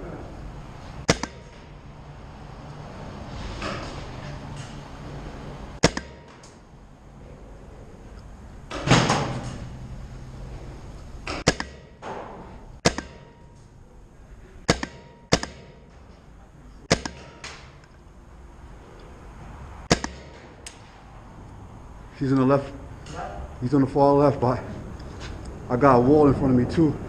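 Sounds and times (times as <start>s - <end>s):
paintball marker shots echoing: 1.1s - 1.8s, 5.8s - 6.6s, 11.3s - 13.6s, 14.6s - 15.9s, 16.9s - 17.9s, 19.8s - 20.9s.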